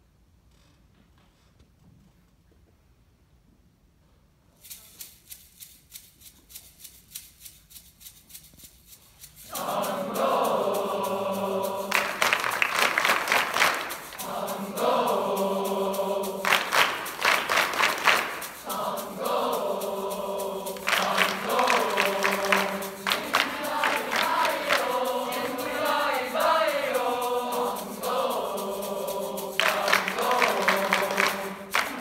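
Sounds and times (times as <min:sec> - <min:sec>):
choir clapping a steady beat: 0:09.4 - 0:32.0
boys' choir singing in chords: 0:09.5 - 0:32.0.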